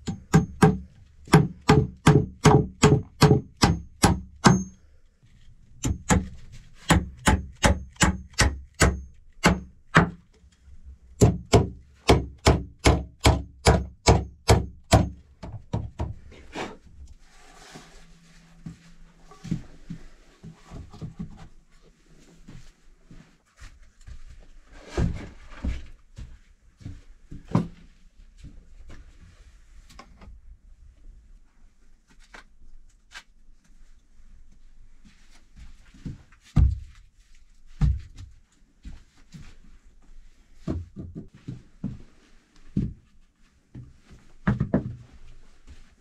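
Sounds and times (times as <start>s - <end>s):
axe hammering on wooden planks: 0.0s - 4.8s, 5.8s - 10.3s, 11.2s - 16.1s.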